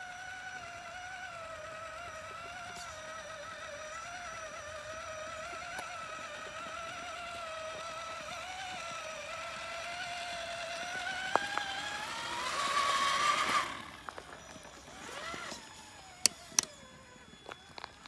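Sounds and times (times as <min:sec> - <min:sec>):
electric motor whining: 0:00.0 - 0:18.0
sharp clicks: 0:16.2 - 0:16.8.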